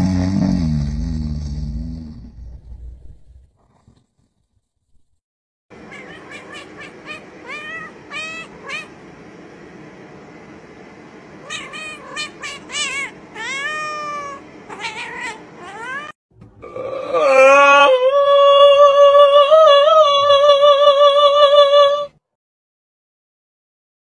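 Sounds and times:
cats meowing: 5.8 - 9.0, 11.4 - 16.2.

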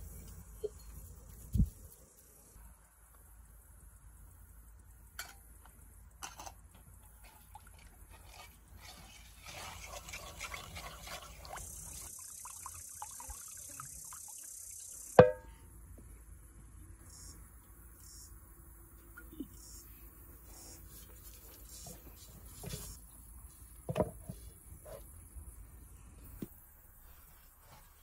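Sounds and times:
liquid pouring: 7.5 - 15.4.

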